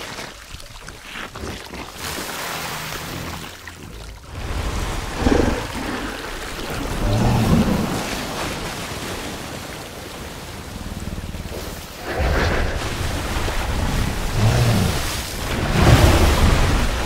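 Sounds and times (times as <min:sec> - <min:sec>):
rumble of water and wind: 0:00.0 - 0:17.0
gorilla growling: 0:14.2 - 0:15.2.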